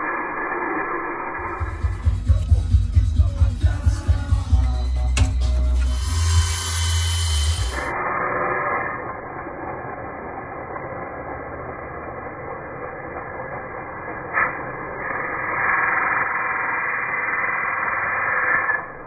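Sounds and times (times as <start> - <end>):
angle grinder grinding steel: 4.0 - 8.1.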